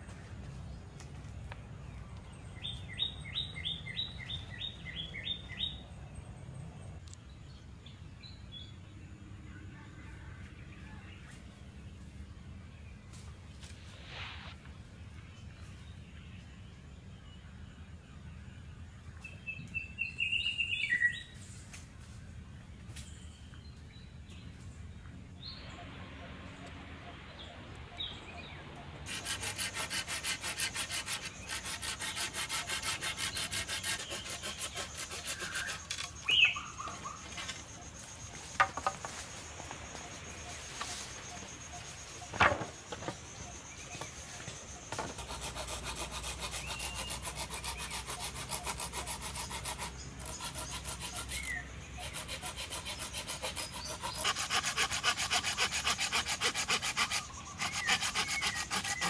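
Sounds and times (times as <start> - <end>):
hand saw cutting wood: 29.0 - 36.5, 44.9 - 59.0.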